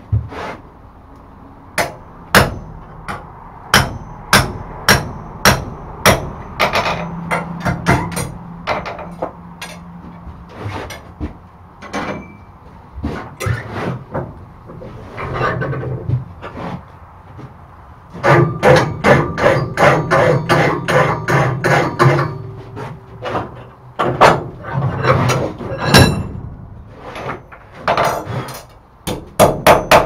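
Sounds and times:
hammer striking steel punch: 0:01.8 - 0:08.8, 0:25.8 - 0:27.4, 0:29.1 - 0:30.0.

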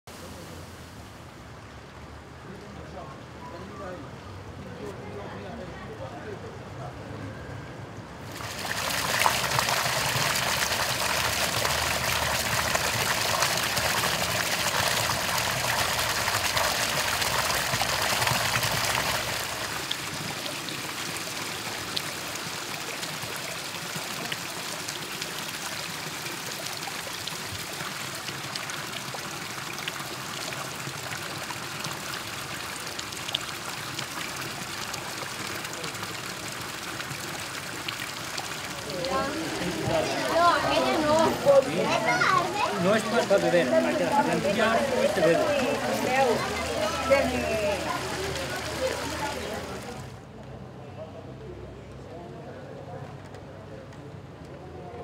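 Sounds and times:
water splashing into stone basin: 0:08.3 - 0:50.2.

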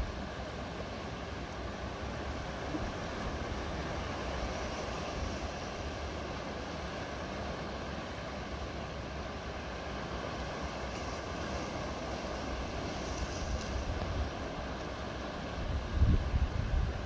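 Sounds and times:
sea surf breaking over rocks: 0:00.0 - 0:17.0
wind buffeting microphone: 0:15.5 - 0:17.0.

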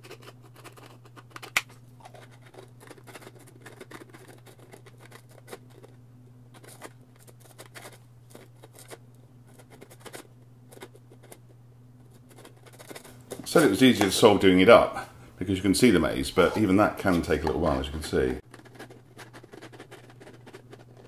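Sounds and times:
plastic puzzle box clicks and scrapes: 0:00.0 - 0:11.5, 0:12.1 - 0:13.4, 0:17.2 - 0:21.0.

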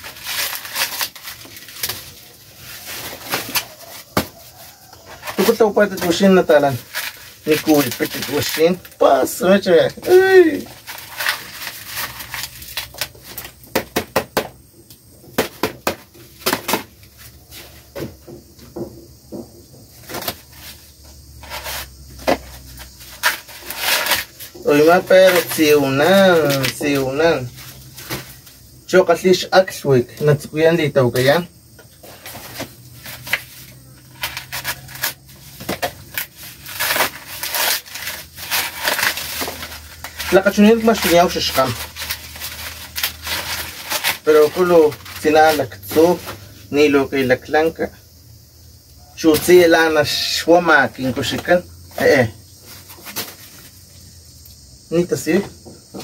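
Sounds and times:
maize husks tearing by hand: 0:00.0 - 0:04.4, 0:05.2 - 0:13.6, 0:23.0 - 0:28.3, 0:32.4 - 0:46.2
dry leaves rustling: 0:00.0 - 0:13.6, 0:21.4 - 0:28.7, 0:32.0 - 0:46.6.

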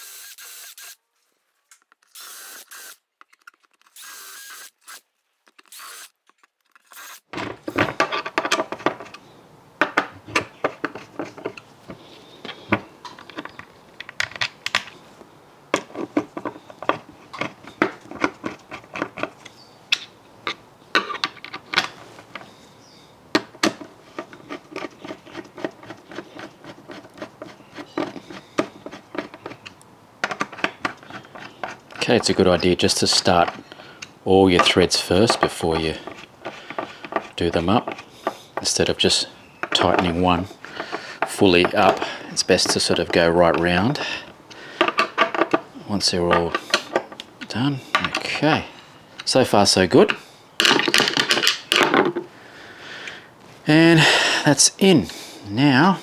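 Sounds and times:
cordless drill running: 0:00.0 - 0:01.0, 0:02.1 - 0:03.0, 0:03.9 - 0:05.0, 0:05.7 - 0:06.1, 0:06.8 - 0:07.3.

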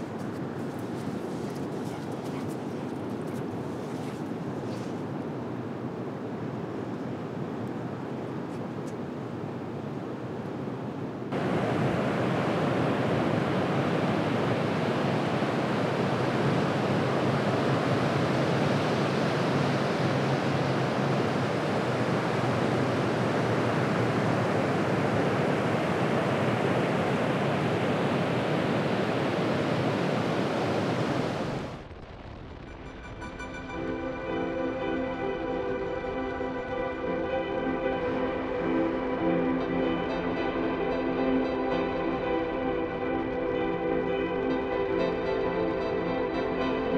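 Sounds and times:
ocean surf breaking: 0:11.2 - 0:31.9
soft music: 0:33.4 - 0:46.9.

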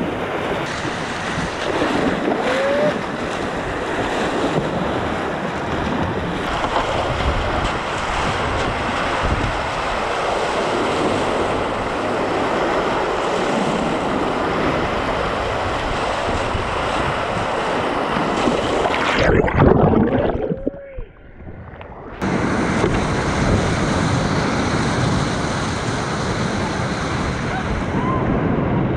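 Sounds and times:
wind buffeting microphone: 0:00.0 - 0:28.9
whitewater rapids rushing: 0:00.6 - 0:04.4
underwater gurgle: 0:18.4 - 0:22.2.

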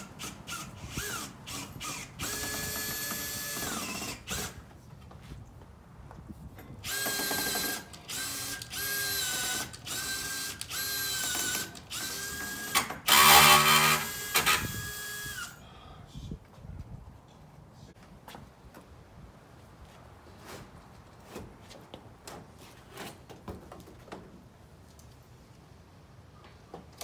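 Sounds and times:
cordless drill driving screw: 0:00.2 - 0:04.6, 0:06.8 - 0:15.6.

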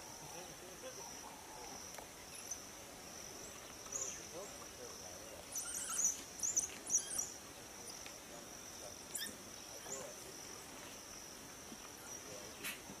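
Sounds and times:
insects droning: 0:00.0 - 0:13.0
high chirping calls: 0:05.4 - 0:08.0.

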